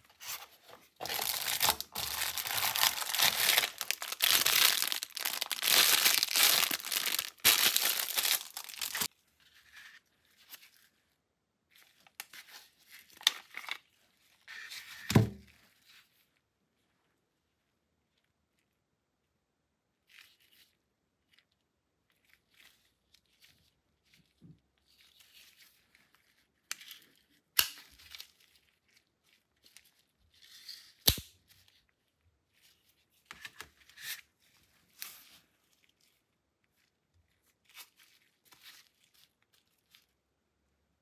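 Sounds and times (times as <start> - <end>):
gloved hands rustling: 0.0 - 9.1.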